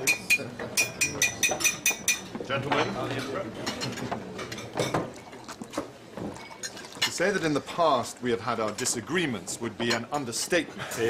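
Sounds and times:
glass tapped with cutlery: 0.0 - 5.2.

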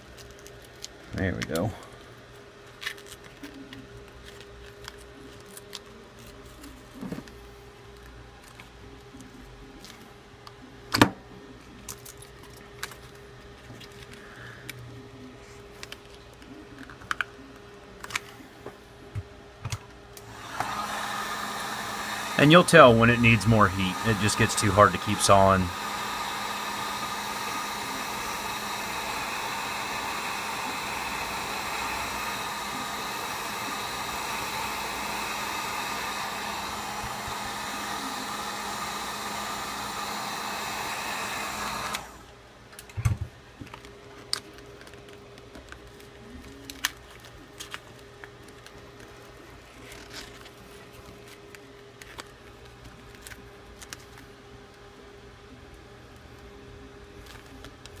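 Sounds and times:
heat gun blowing: 20.2 - 42.2.

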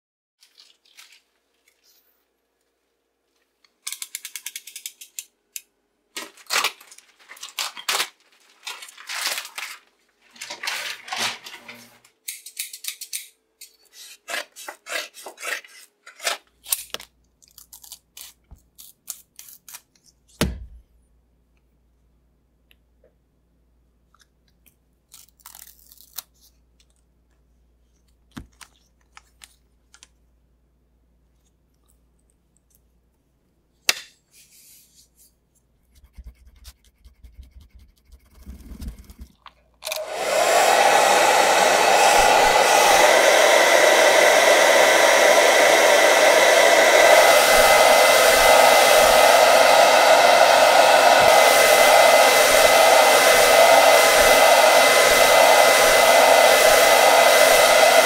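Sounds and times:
film crinkling: 0.4 - 1.8, 6.1 - 11.9
hair dryer: 39.9 - 58.0.

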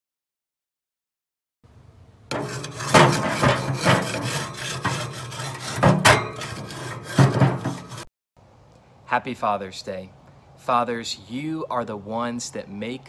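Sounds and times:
scraper rasping on grill grates: 2.3 - 8.1.

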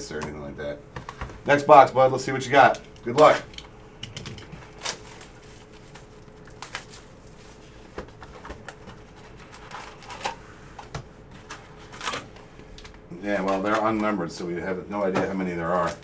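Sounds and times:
faint steady hum: 0.0 - 16.0
foil wrappers crinkling: 4.3 - 10.6, 11.4 - 14.3.

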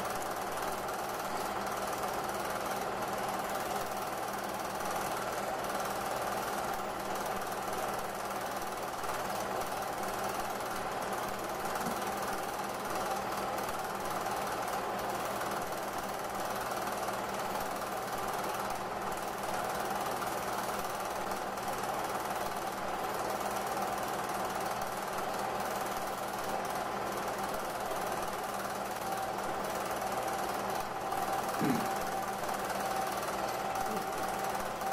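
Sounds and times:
projector motor humming: 0.0 - 34.9.

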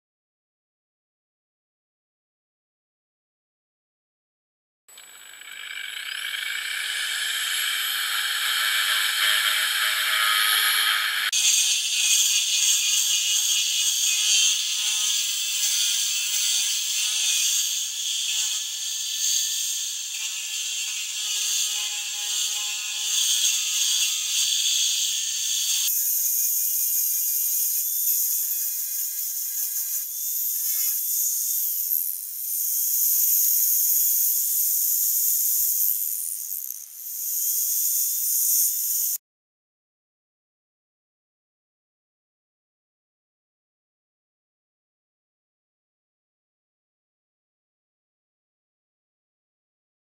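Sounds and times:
electric sander whining: 4.9 - 13.8.

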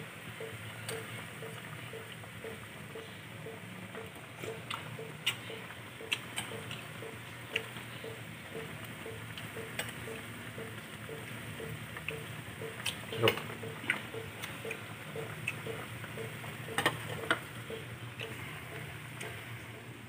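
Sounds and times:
broth bubbling in a pot: 0.0 - 19.6
sharp pops and clicks: 4.0 - 19.4.

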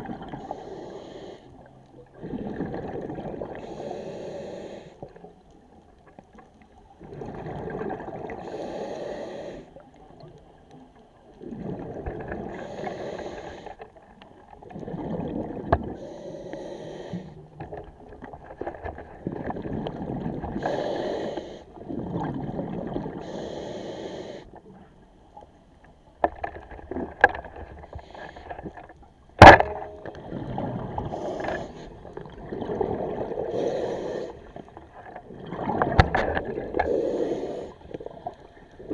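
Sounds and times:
diver breathing underwater: 0.3 - 5.1, 7.1 - 9.8, 11.5 - 13.8, 14.9 - 17.5, 19.9 - 24.6, 29.6 - 34.8, 35.5 - 38.9.

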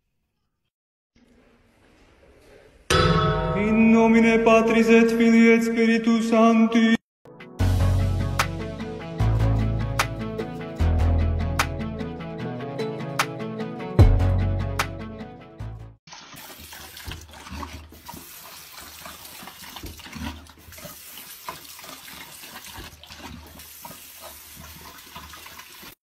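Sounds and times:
guitar music: 7.4 - 15.9
dog drinking water: 16.1 - 26.0.

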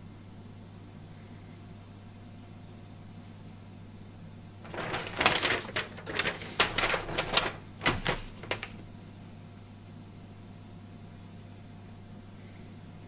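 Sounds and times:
steady low hum: 0.0 - 13.0
paper leaflet rustling: 4.6 - 8.9.

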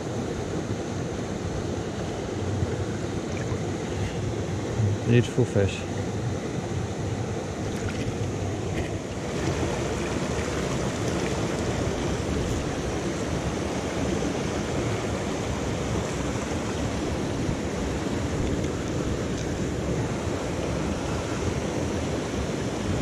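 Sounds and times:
stream water tumbling over stones: 7.6 - 23.0.

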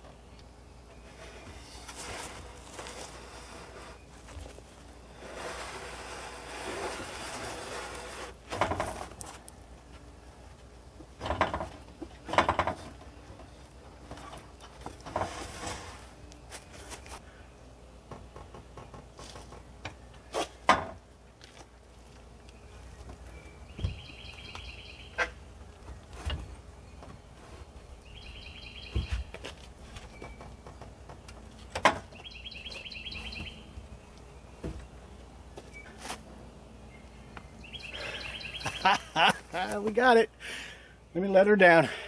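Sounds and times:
wooden beams scraping: 0.9 - 9.5, 11.0 - 17.2, 22.8 - 33.6
sharp wooden knocks and thuds: 8.5 - 9.1, 11.2 - 13.0, 23.8 - 24.1, 30.0 - 32.2.

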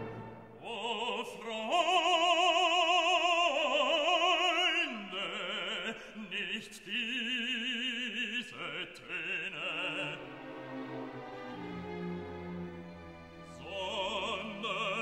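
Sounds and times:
operatic voice singing: 0.5 - 10.6, 13.5 - 15.0.

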